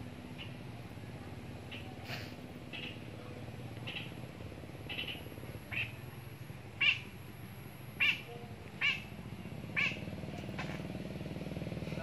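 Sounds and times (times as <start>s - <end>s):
small animal high calls: 1.6s - 3.1s, 3.8s - 4.2s, 4.8s - 6.0s, 6.8s - 7.1s, 8.0s - 10.1s.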